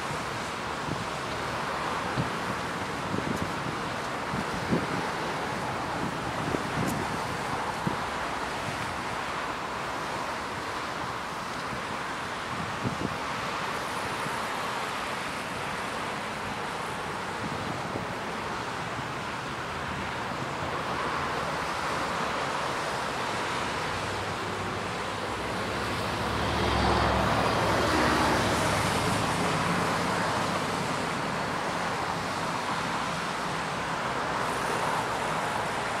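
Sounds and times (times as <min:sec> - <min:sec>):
city road traffic hum: 0:00.0 - 0:36.0
vehicle passing engine rumble: 0:24.0 - 0:31.1.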